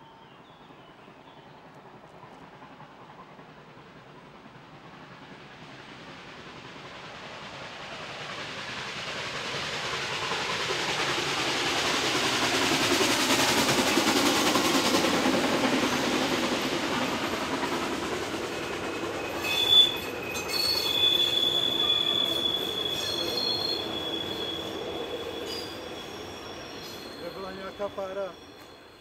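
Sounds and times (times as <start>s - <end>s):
train wheels clattering: 1.7s - 29.0s
high-pitched wheel squeal: 19.2s - 29.0s.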